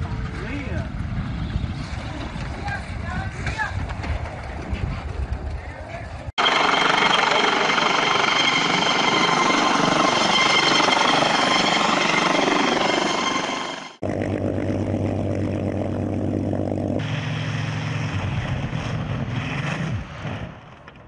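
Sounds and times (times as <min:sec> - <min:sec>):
helicopter rotor and turbine whine: 0:06.4 - 0:20.6
propeller plane engine drone: 0:06.4 - 0:21.0.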